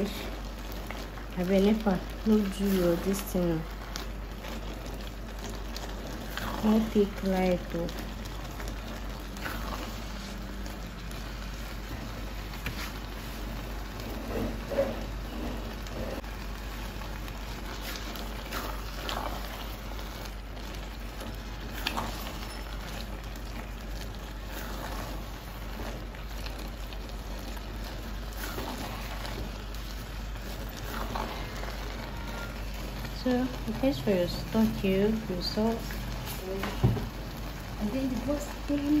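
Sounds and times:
porridge simmering with a hiss: 0:00.0 - 0:39.0
spatula scraping a pot: 0:14.0 - 0:16.3, 0:17.6 - 0:33.8.

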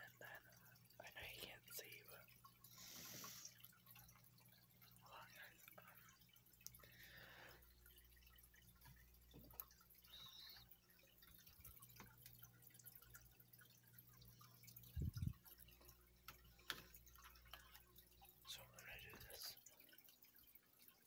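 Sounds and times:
small ticks: 0:05.3 - 0:06.9.

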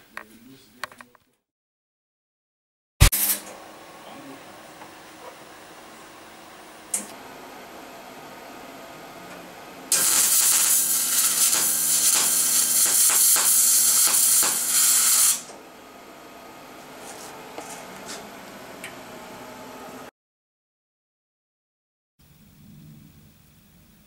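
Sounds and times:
welding arc crackling and hissing: 0:09.9 - 0:15.6.

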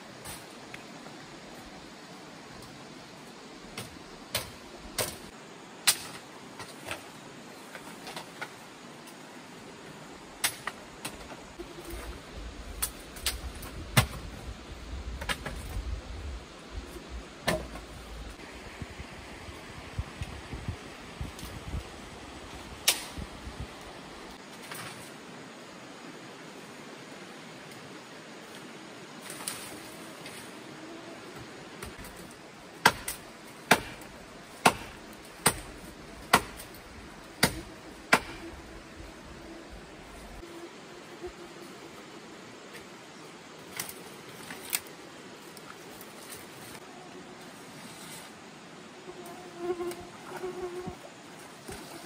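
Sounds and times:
steady background hiss: 0:00.0 - 0:52.0
blade chopping strikes: 0:32.8 - 0:35.7, 0:37.4 - 0:38.4.

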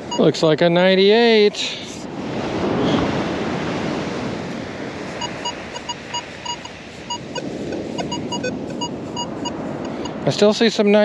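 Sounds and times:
metal detector beeps: 0:00.0 - 0:00.3, 0:05.2 - 0:10.2
ocean surf hiss: 0:01.0 - 0:10.7.

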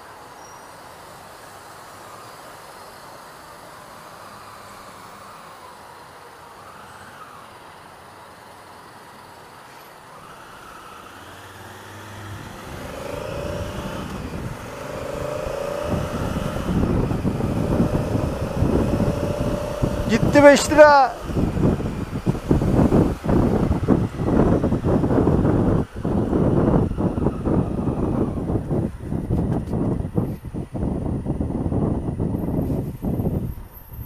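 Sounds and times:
traffic: 0:00.0 - 0:34.0
motorcycle engine accelerating: 0:10.2 - 0:32.6
wind rumbling on microphone: 0:11.7 - 0:34.0.

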